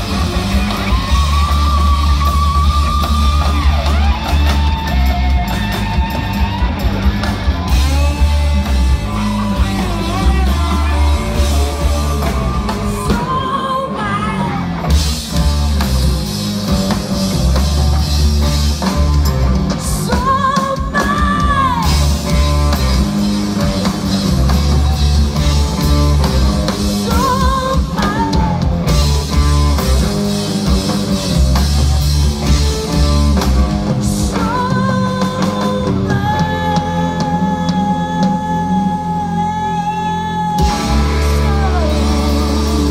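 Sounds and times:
distorted electric guitars: 0.0 - 42.9
drum kit: 0.0 - 42.9
woman singing: 9.1 - 14.8, 19.8 - 22.1, 27.0 - 28.7, 34.0 - 42.9.

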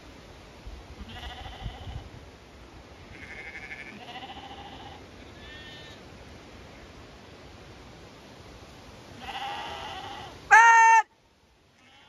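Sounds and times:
wind rumble on microphone: 0.6 - 2.3
sheep and lambs bleating: 1.0 - 2.0, 3.1 - 6.0, 9.2 - 11.1, 11.8 - 12.0.

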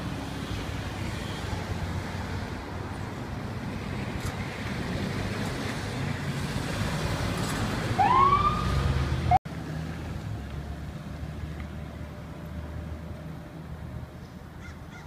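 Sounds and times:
traffic noise: 0.0 - 15.0
vehicle engine and road noise: 0.0 - 15.0
rising siren sweep: 8.0 - 9.4.

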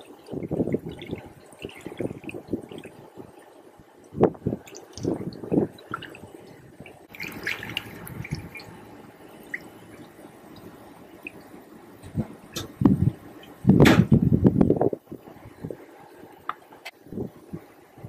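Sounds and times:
liquid glugging into a tank: 0.0 - 14.2.

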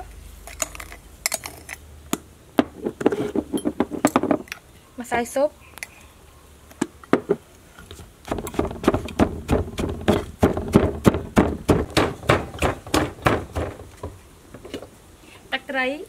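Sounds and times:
pestle pounding in wooden mortar: 8.2 - 14.2.

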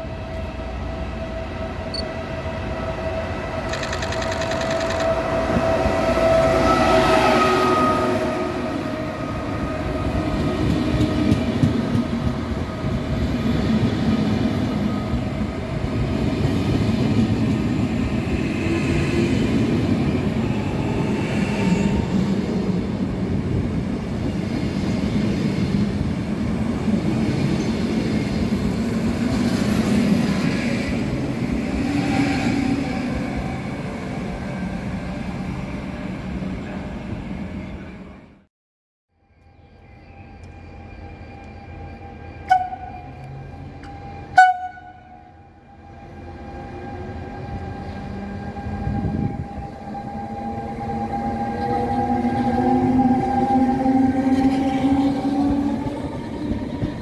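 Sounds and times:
train wheels rumbling and clattering: 3.7 - 5.7, 10.0 - 14.4.

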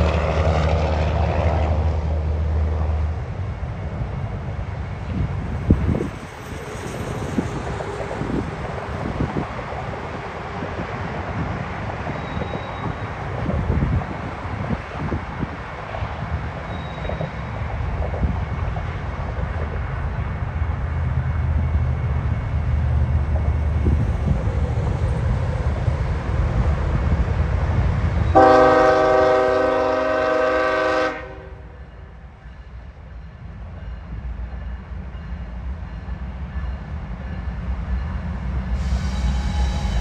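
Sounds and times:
diesel locomotives rumbling: 0.0 - 40.0
locomotive horn blast: 28.3 - 31.8.

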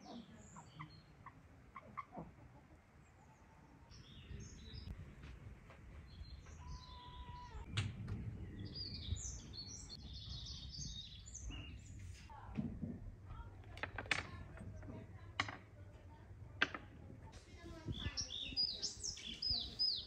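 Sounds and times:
small birds chirping: 0.0 - 5.0, 6.0 - 12.5, 16.7 - 20.0.

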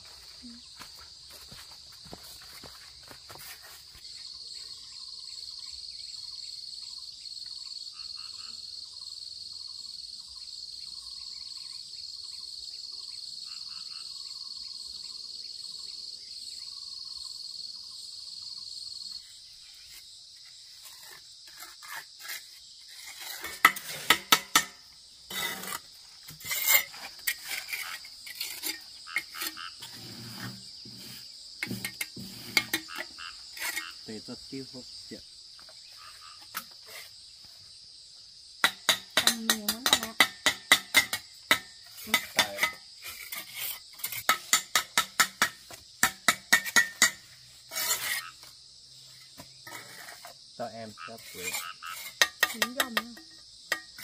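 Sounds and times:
high insect drone: 0.0 - 54.0
trowel clinking and scraping bricks: 20.8 - 34.0, 38.6 - 48.3, 49.2 - 50.4, 51.2 - 54.0.

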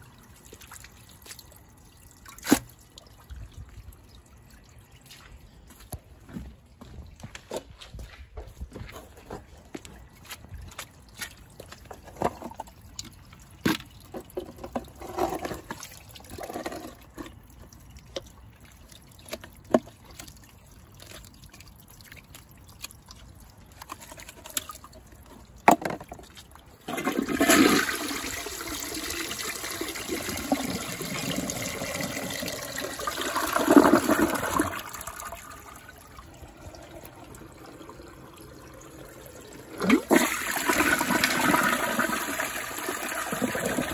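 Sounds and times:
toilet flushing: 26.8 - 43.9.

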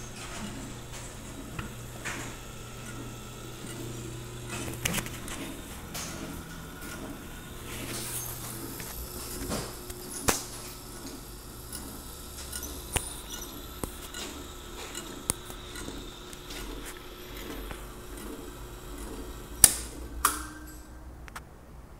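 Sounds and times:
motor hum: 0.0 - 21.3
switch clicks: 19.6 - 20.6.

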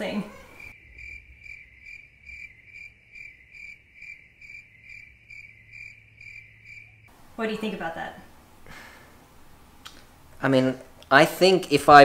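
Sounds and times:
cricket chirping: 0.0 - 7.2.

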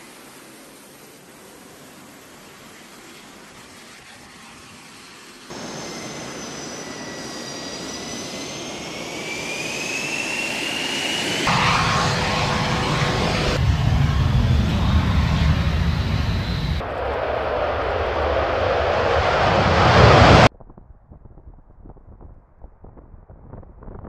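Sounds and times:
jet turbine whine: 0.0 - 20.5
deep jet rumble: 11.5 - 24.0.

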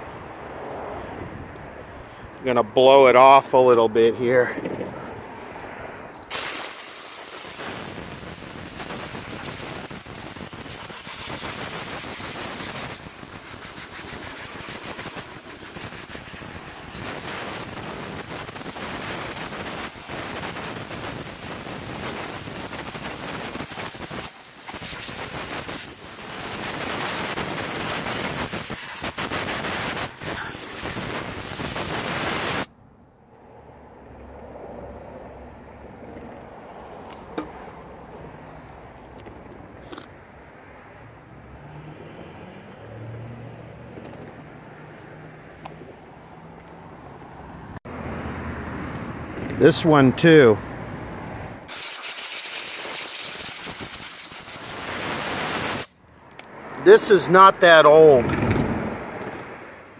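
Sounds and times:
compressed air blow gun hissing: 6.3 - 32.7, 51.7 - 55.9.

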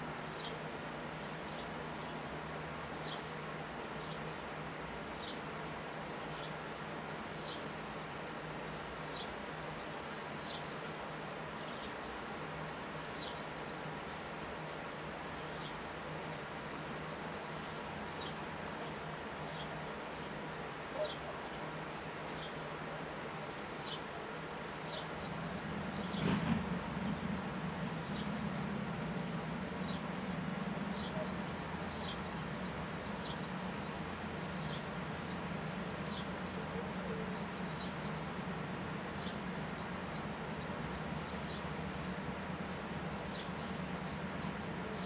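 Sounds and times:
sparrows chirping: 0.4 - 7.7, 8.5 - 26.4, 27.8 - 28.6, 29.8 - 38.4, 39.1 - 45.0.

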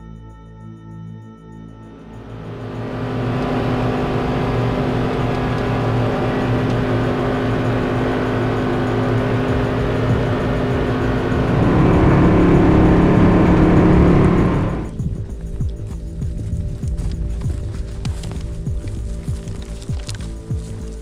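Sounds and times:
vehicle engine running: 2.2 - 15.6.

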